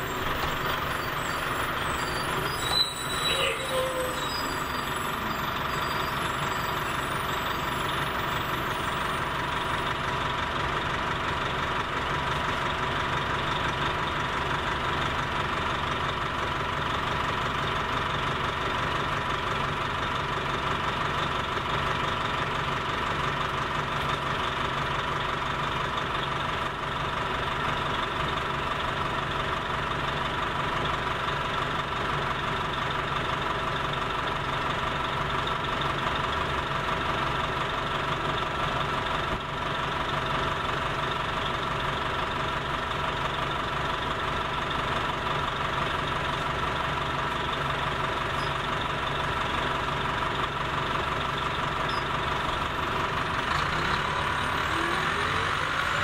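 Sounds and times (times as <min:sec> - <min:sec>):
high-pitched whine: 0:00.0 - 0:09.8
bus engine idling: 0:00.0 - 0:56.0.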